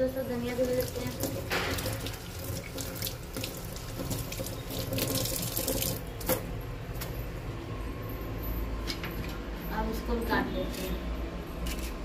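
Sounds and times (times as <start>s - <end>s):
hands rinsing herbs: 0.1s - 6.4s
tap water running into sink: 0.2s - 6.4s.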